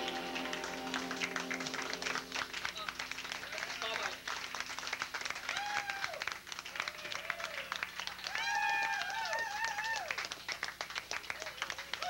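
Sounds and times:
audience clapping: 0:00.0 - 0:12.0
high-pitched whooping cheers: 0:05.4 - 0:06.2, 0:08.2 - 0:10.2.

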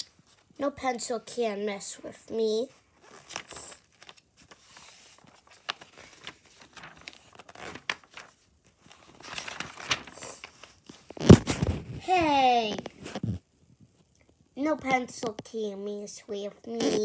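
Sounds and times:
paper pages rustling and turning: 0:02.7 - 0:15.6.

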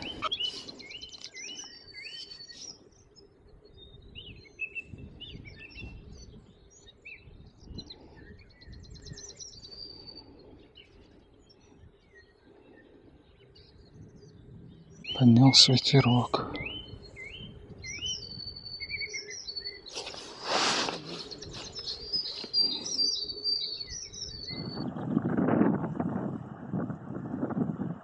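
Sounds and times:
light wind rumble: 0:00.0 - 0:28.0
songbirds chirping and trilling: 0:00.0 - 0:28.0.

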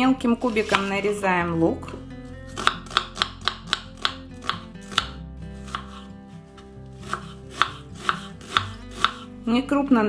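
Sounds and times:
knife chopping on cutting board: 0:00.6 - 0:00.9, 0:02.5 - 0:09.3.

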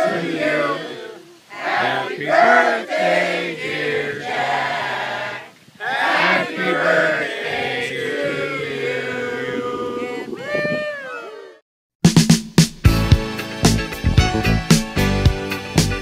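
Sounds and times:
group of people singing: 0:00.0 - 0:10.3.

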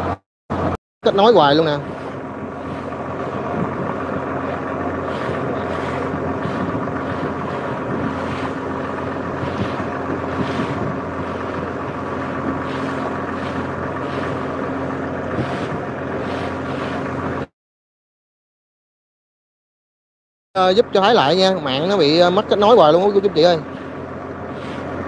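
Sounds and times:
boat engine humming: 0:00.0 - 0:17.5, 0:20.6 - 0:25.0
wind gusting on microphone: 0:00.0 - 0:17.5.

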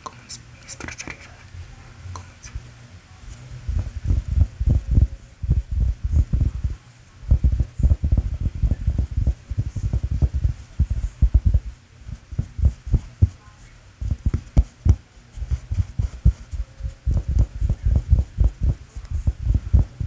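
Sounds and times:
fingers tapping a velvet pillow: 0:07.3 - 0:13.4, 0:14.0 - 0:20.0.

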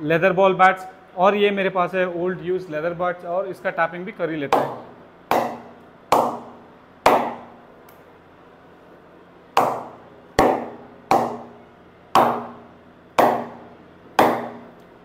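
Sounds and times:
ball knocking on wooden bat: 0:04.5 - 0:06.5, 0:09.6 - 0:11.6, 0:12.2 - 0:12.6, 0:13.2 - 0:13.6, 0:14.2 - 0:14.7.

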